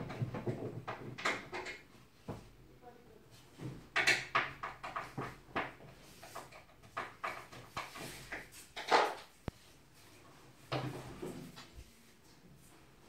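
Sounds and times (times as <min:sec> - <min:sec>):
wooden panels knocking and scraping: 0:00.0 - 0:02.6, 0:03.5 - 0:09.6, 0:10.4 - 0:11.9.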